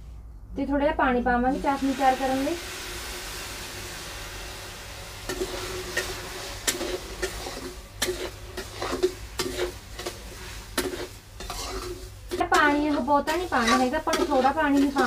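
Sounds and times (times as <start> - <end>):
metal spatula scraping and clinking pan: 5.3 - 15.0.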